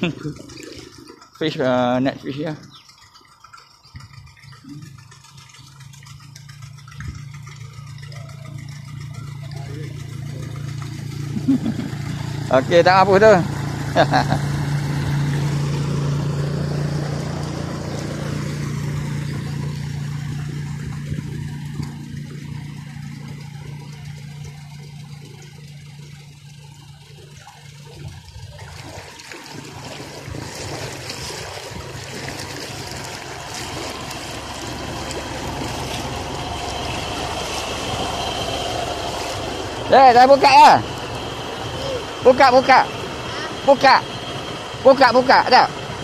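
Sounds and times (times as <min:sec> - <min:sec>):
floodwater trickling and lapping: 0:00.0 - 0:46.0
small motorcycle engine: 0:00.0 - 0:46.0.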